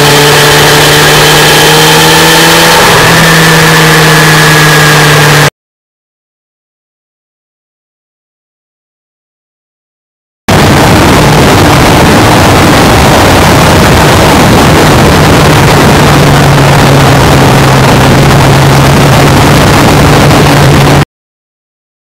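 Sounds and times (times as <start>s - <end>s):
motorcycle engine cruising: 0.0s - 5.5s, 10.5s - 21.0s
wind rush: 0.0s - 5.5s, 10.5s - 21.0s.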